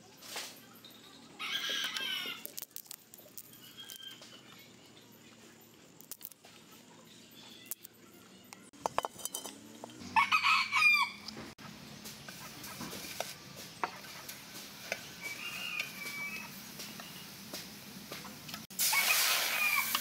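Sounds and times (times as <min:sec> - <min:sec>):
rooster crowing: 0:01.4 - 0:02.4, 0:10.0 - 0:11.3, 0:19.4 - 0:20.0.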